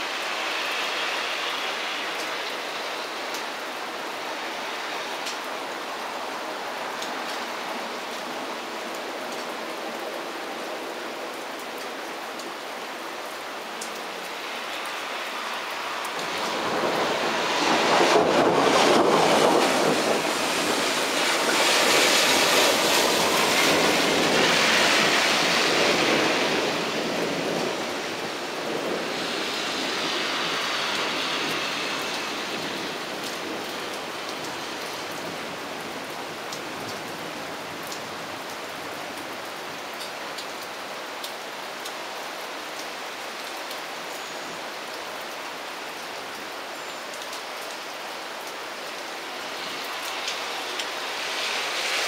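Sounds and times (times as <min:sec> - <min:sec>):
steady rain falling: 0:00.0 - 0:52.0
thunder rumbling: 0:16.2 - 0:34.2.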